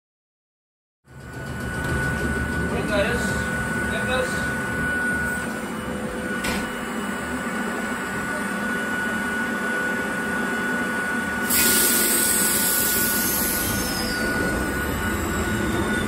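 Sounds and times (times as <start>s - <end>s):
railcar equipment whine: 1.1s - 16.0s
loud air hiss: 11.4s - 14.2s.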